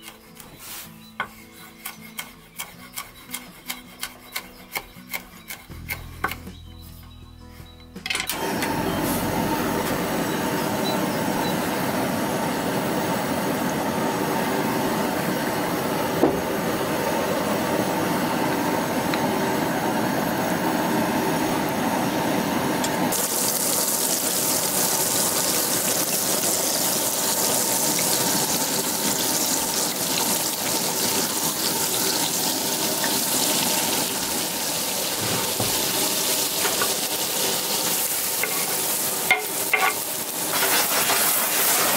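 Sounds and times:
gas stove hissing: 0:08.3 - 0:41.9
butter and oil sizzling in pan: 0:19.8 - 0:41.9.

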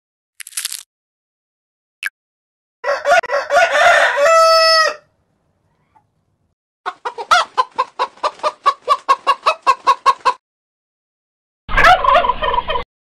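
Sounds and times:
hen clucking: 0:05.6 - 0:06.2, 0:06.8 - 0:10.4, 0:11.7 - 0:12.8
turkey gobbling: 0:06.9 - 0:10.4, 0:11.7 - 0:12.8.

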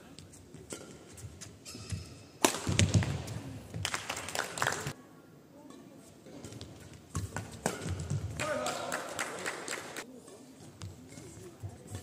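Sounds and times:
shoes squeaking on court floor: 0:00.0 - 0:03.5
racket hitting shuttlecock: 0:00.6 - 0:03.5, 0:06.3 - 0:08.8.

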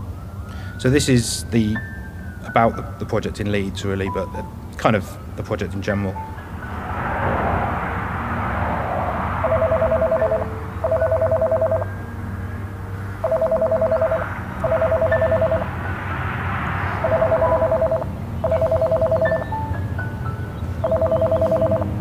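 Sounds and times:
payphone ringing: 0:09.4 - 0:11.9, 0:13.2 - 0:15.7, 0:17.0 - 0:19.6, 0:20.8 - 0:22.0.

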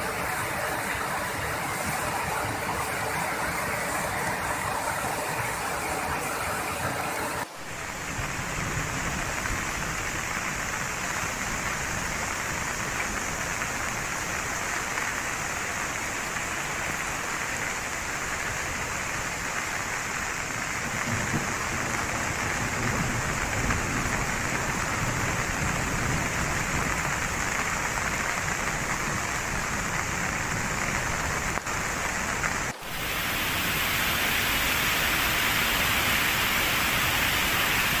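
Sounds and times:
river rushing: 0:00.0 - 0:20.8, 0:26.6 - 0:38.0
running water: 0:00.0 - 0:25.5, 0:30.4 - 0:38.0
heavy rain: 0:00.0 - 0:38.0.

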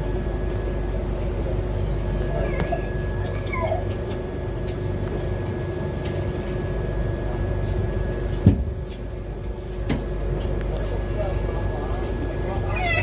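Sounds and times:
thin high whine: 0:00.0 - 0:08.4.

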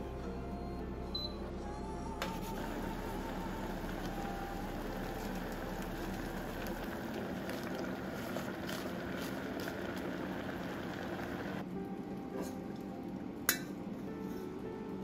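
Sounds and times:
background music: 0:00.0 - 0:15.0
hiss of pot boiling: 0:02.2 - 0:15.0.

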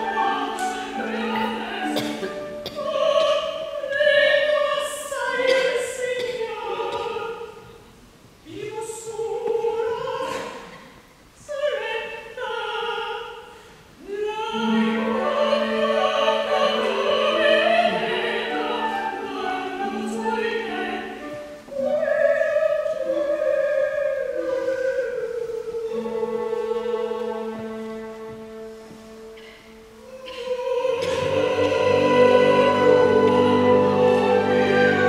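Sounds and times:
orchestra playing: 0:00.0 - 0:02.7, 0:25.8 - 0:29.9, 0:31.0 - 0:35.0
operatic voices singing: 0:14.2 - 0:28.2, 0:30.2 - 0:35.0.

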